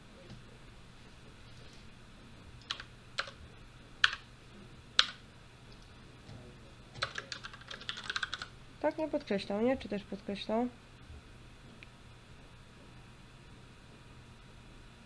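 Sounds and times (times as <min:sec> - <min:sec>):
computer keyboard keystrokes: 0:02.6 - 0:03.4, 0:04.0 - 0:04.2, 0:05.0 - 0:05.2, 0:07.0 - 0:08.5.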